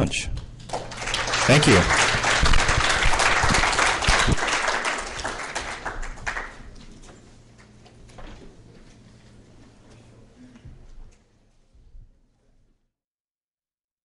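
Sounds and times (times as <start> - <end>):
audience applauding: 0.7 - 6.8.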